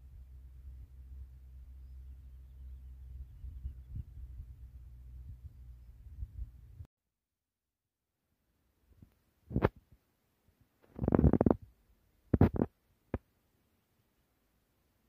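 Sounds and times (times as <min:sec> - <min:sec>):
low rumbling microphone noise: 0:00.0 - 0:06.9.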